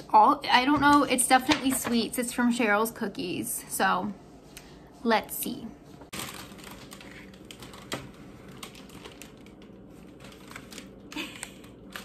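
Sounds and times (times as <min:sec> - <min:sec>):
cellophane crinkling: 0:06.1 - 0:12.0.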